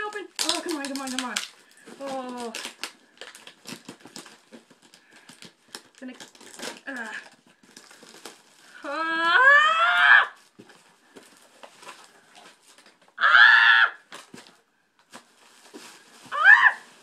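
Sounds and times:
person squealing excitedly: 8.8s - 10.4s, 13.2s - 14.0s, 16.3s - 16.9s
faint clicks and rustles: 10.4s - 13.2s.

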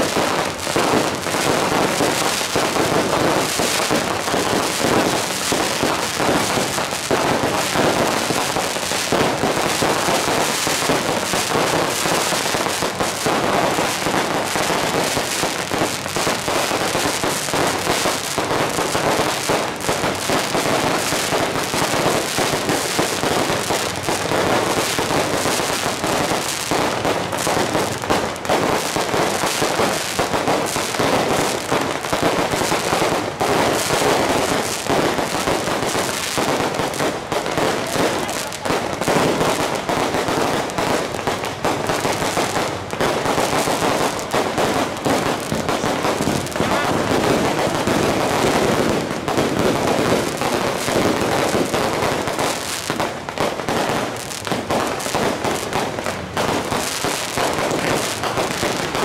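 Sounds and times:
aerial fireworks bursting: 0.0s - 59.0s
firecrackers crackling: 0.0s - 59.0s.

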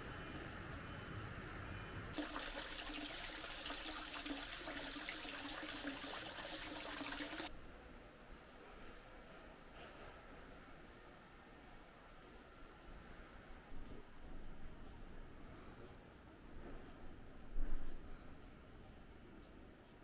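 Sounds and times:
water trickling and splashing: 2.2s - 7.5s.

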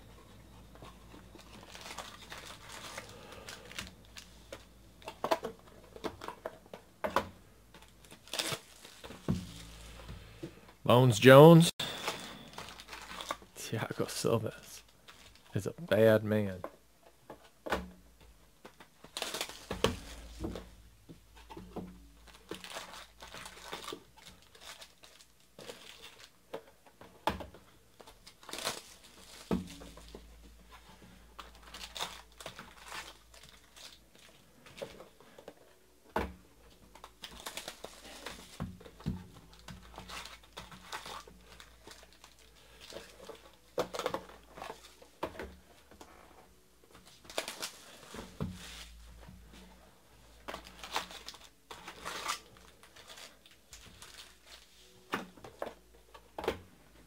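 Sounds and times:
foil packs crinkling: 0.9s - 6.5s, 7.8s - 10.1s, 11.8s - 15.6s, 19.0s - 20.5s, 22.2s - 26.7s, 27.9s - 35.8s, 36.7s - 49.0s, 50.4s - 56.3s.

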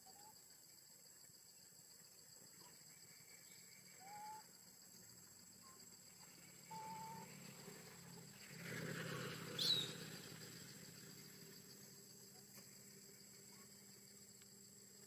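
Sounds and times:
rising whistled animal call: 3.9s - 4.5s, 6.7s - 7.4s, 9.5s - 10.1s.

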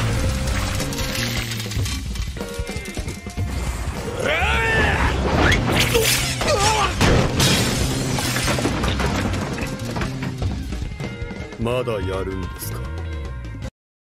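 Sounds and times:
glass shattering: 0.0s - 2.4s, 5.5s - 10.7s
background music: 0.0s - 13.7s
sharp crashing impacts: 5.1s - 10.7s.

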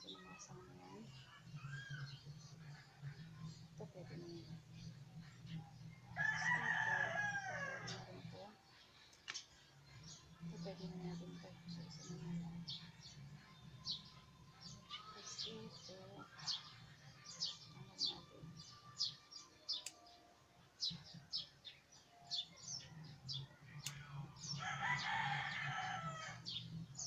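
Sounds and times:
small birds chirping: 0.0s - 27.0s
rooster crowing: 6.2s - 8.0s, 24.6s - 26.4s.

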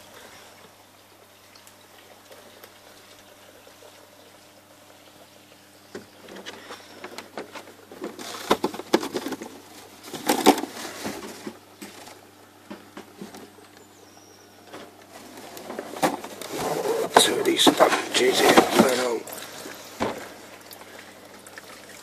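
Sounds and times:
faint steady hum: 0.0s - 22.0s
knocks and rustling in filter: 5.8s - 13.7s, 14.6s - 22.0s
water splashing: 15.1s - 22.0s.

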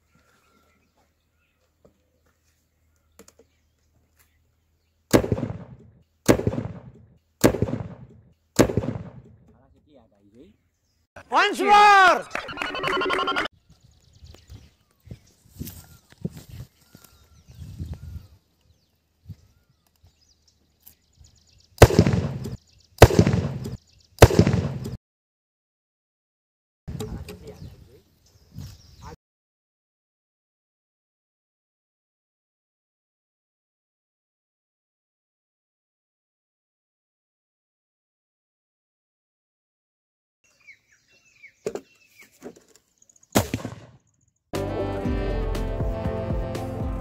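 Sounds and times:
cannon firing bangs: 5.1s - 9.5s, 21.8s - 25.0s, 43.4s - 43.9s.

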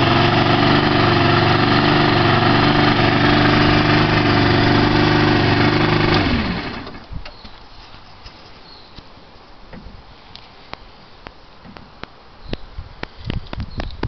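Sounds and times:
scooter engine idling: 0.0s - 7.0s
engine shutting off: 0.0s - 7.1s.

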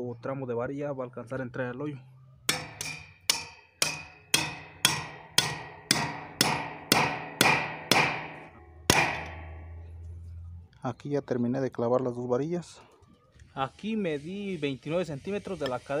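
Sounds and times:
hammer striking steel rebar: 2.4s - 10.0s.

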